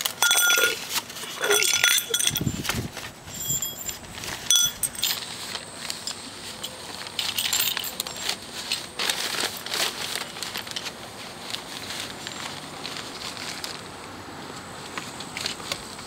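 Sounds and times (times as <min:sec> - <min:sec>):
newspapers rustling and crinkling: 0:00.0 - 0:01.7, 0:02.5 - 0:16.0
sharp metallic clinks: 0:00.0 - 0:02.7, 0:03.3 - 0:05.3, 0:06.0 - 0:08.9.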